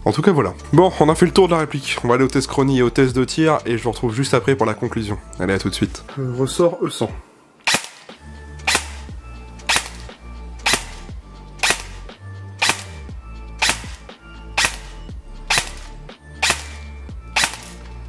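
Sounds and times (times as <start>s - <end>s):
airsoft gun shots cracking: 7.7s - 9.1s, 9.7s - 13.0s, 13.6s - 17.8s.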